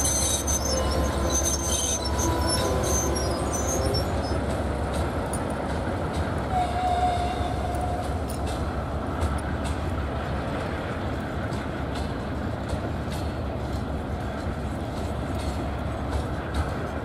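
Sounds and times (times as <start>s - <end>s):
thin squeal: 0.0s - 4.4s
diesel locomotive rumble: 0.0s - 17.0s
train wagons rolling: 0.0s - 17.0s.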